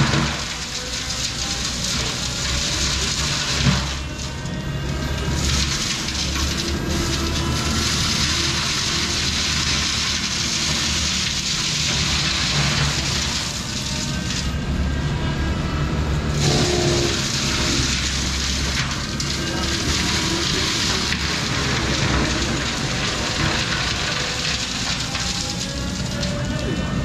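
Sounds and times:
diesel engine under load: 0.0 - 27.0
mulching head grinding brush: 16.3 - 23.5.

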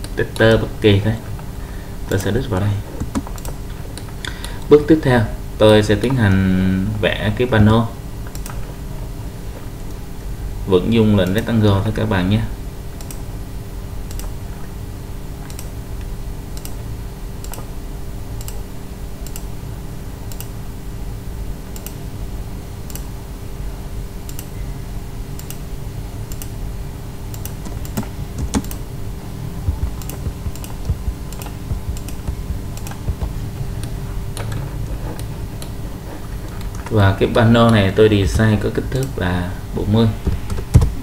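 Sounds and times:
low electrical hum: 0.0 - 41.0
keyboard and mouse clicks: 3.0 - 4.1, 8.3 - 8.6, 14.1 - 14.4, 18.4 - 18.6, 27.3 - 28.9, 29.6 - 35.8, 40.2 - 41.0.

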